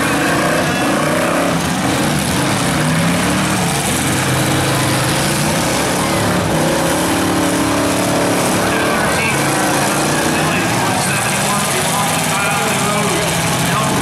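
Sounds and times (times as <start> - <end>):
car engines revving: 0.0 - 14.0.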